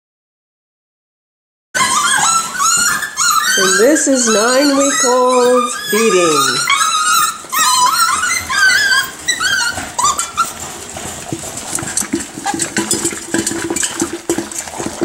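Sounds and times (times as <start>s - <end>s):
puppies whining and yipping: 1.8s - 15.0s
kibble rattling in metal pan: 10.4s - 15.0s.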